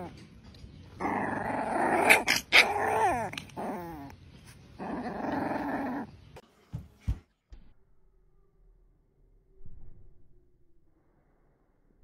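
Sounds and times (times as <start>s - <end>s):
puppy growling: 0.9s - 6.1s
puppy yelping: 1.0s - 4.1s.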